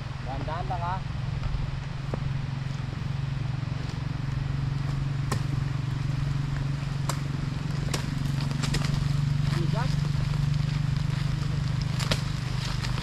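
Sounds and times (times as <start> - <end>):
engine humming: 0.0 - 13.0.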